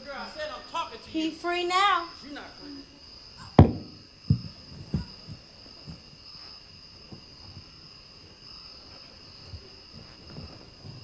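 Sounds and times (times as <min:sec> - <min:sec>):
crickets chirring: 0:00.0 - 0:11.0
soft thuds on stage: 0:03.6 - 0:06.0.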